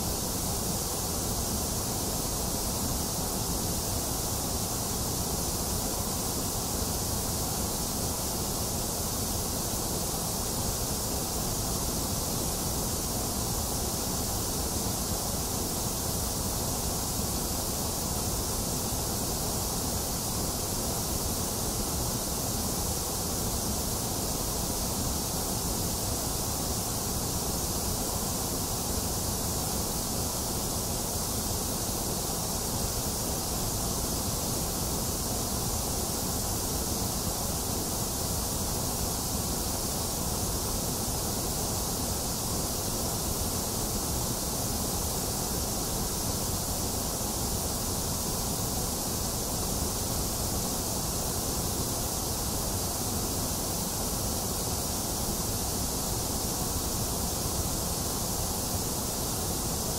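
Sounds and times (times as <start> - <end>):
steady white noise hiss: 0.0 - 59.9.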